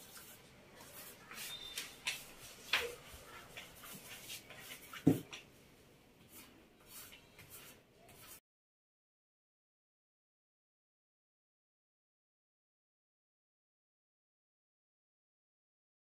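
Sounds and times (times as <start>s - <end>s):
paint brush dabbing on stencil: 0.0s - 5.4s, 6.2s - 8.4s.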